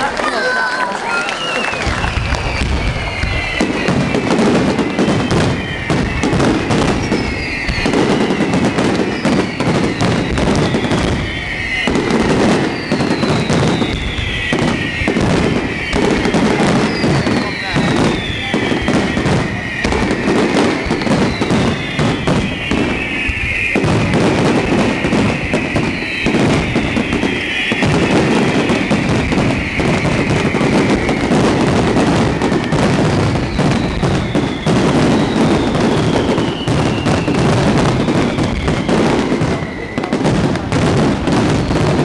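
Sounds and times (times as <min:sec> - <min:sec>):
fireworks bangs and crackling: 0:00.0 - 0:42.0
fireworks whistles falling in pitch: 0:00.0 - 0:42.0.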